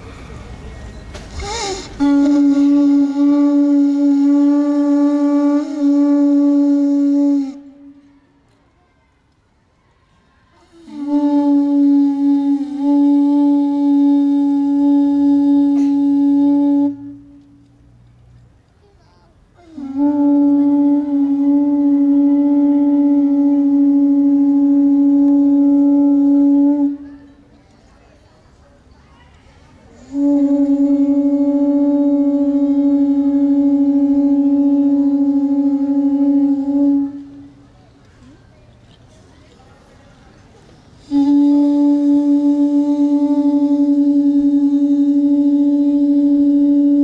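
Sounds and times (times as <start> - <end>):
conch shell trumpets blowing: 1.4 - 8.1, 10.7 - 17.8, 19.6 - 27.5, 29.9 - 37.7, 41.0 - 47.0.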